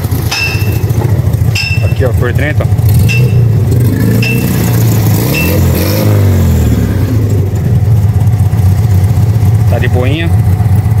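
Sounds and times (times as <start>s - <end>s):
car engine running and revving: 0.0s - 11.0s.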